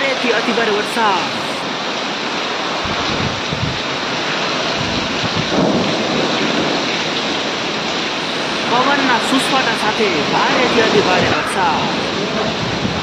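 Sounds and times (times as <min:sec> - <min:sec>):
heavy rain pouring: 0:00.0 - 0:13.0
wind: 0:00.0 - 0:13.0
low rumble: 0:02.8 - 0:09.2.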